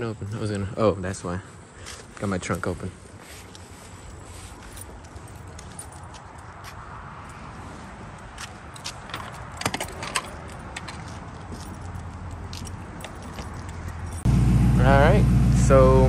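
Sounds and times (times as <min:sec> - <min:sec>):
keys jangling: 0:04.0 - 0:06.7, 0:08.7 - 0:14.3
low rumble: 0:14.2 - 0:16.0.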